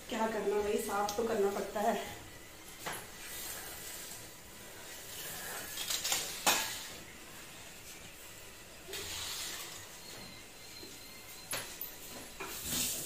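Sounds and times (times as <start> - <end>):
cloth scrubbing a countertop: 12.5 - 13.0.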